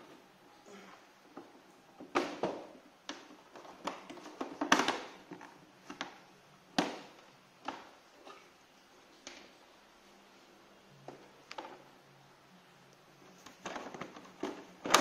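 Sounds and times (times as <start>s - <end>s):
plastic clips clicking and knocking: 2.0s - 6.2s.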